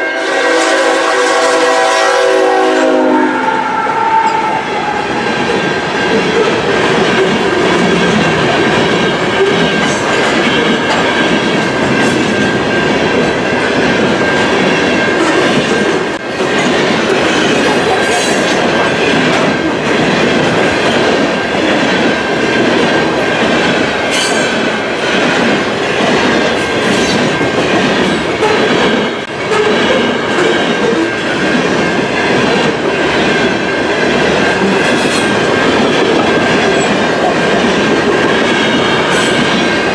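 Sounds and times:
freight train rumbling past: 0.0 - 39.9
high-pitched wheel squeal: 3.2 - 5.1.

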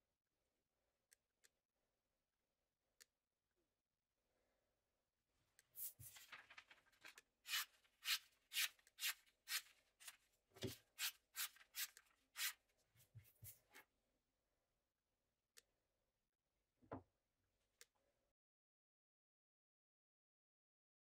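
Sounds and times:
knife slicing paper swishes: 7.5 - 10.2, 10.9 - 12.6.

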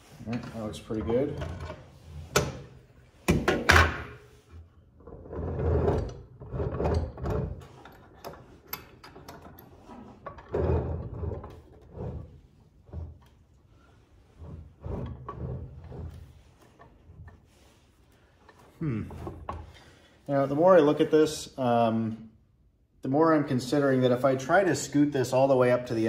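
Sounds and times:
metal vise scraping on wood: 14.3 - 17.5.

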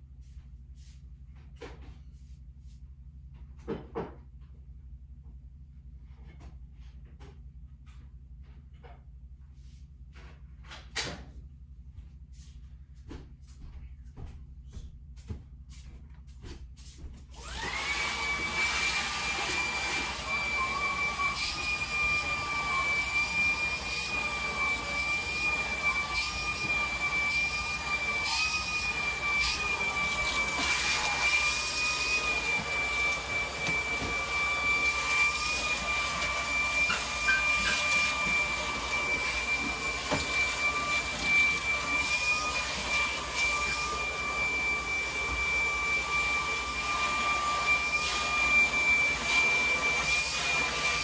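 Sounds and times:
stick vacuum cleaner whine: 17.4 - 51.0.

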